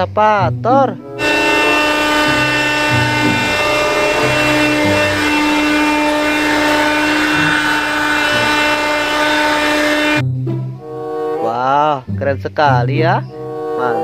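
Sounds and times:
excavator diesel engine: 0.8 - 10.8
hydraulics whining: 0.9 - 11.4.

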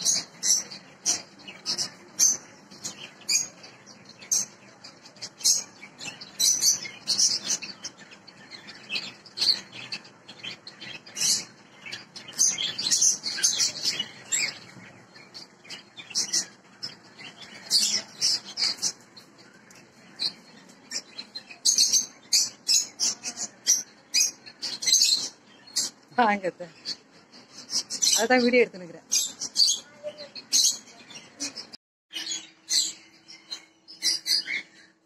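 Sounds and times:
small birds chirping: 0.0 - 35.0.

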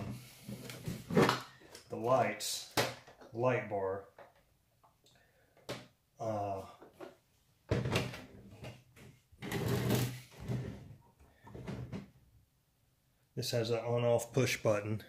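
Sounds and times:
plastic rubbing and knocking: 6.9 - 12.2.

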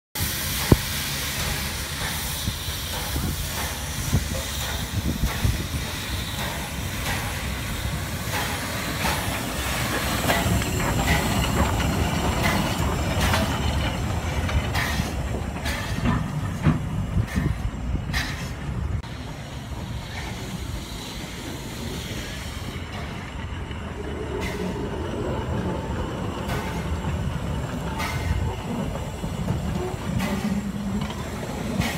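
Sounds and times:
low locomotive rumble: 0.2 - 31.9
steam hissing: 0.2 - 31.9
clanks and knocks of wheels: 2.9 - 18.7, 24.4 - 31.9.

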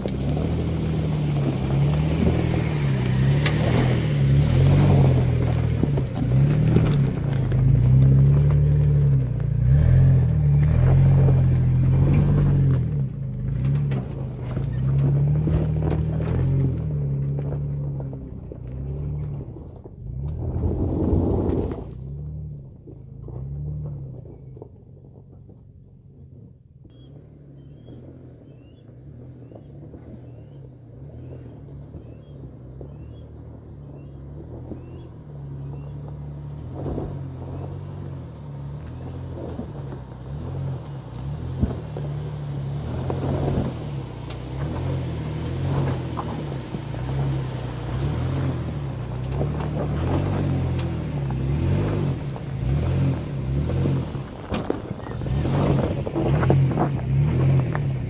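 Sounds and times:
suv engine pulling uphill: 0.0 - 58.0
tyres crunching over rocks: 0.0 - 58.0
bird chirping: 26.9 - 36.0.

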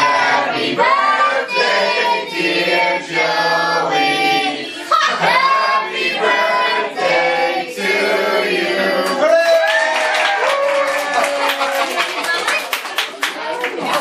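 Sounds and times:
voices singing together: 0.0 - 9.3.

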